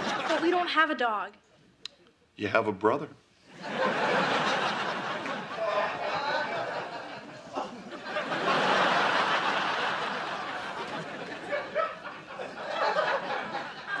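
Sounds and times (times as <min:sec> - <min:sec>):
studio audience laughing: 0:00.0 - 0:00.7, 0:03.5 - 0:14.0.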